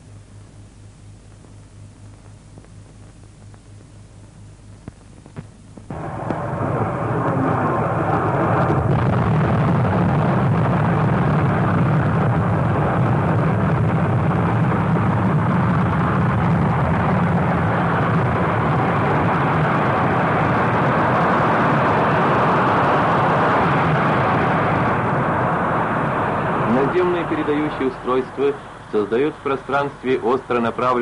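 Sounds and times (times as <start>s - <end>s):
rocket engine roaring: 5.9s - 31.0s.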